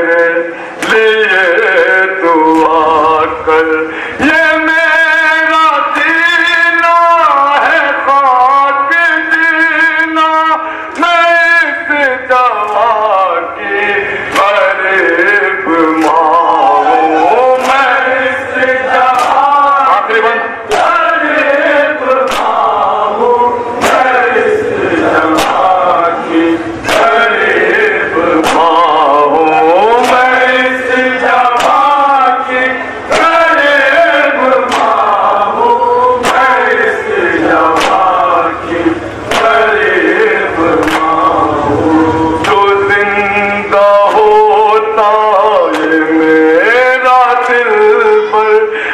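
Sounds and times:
men chanting in unison: 0:00.0 - 0:48.9
sharp rhythmic beat: 0:14.3 - 0:45.0
hand slapping chest: 0:22.3 - 0:22.5, 0:37.8 - 0:38.0.

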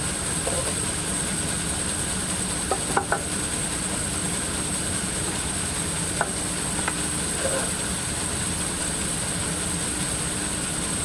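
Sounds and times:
wood knocking on metal table: 0:02.7 - 0:03.3.

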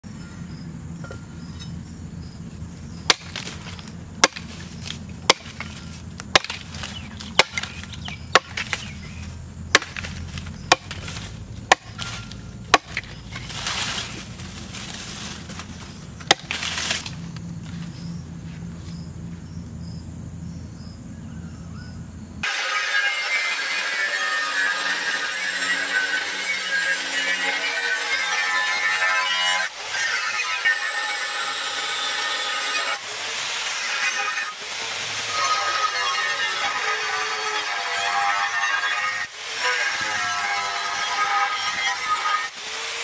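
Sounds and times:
crackling rustles: 0:02.4 - 0:19.0
knife chopping into wood: 0:03.0 - 0:17.2
angle grinder cutting steel: 0:22.4 - 0:43.0.

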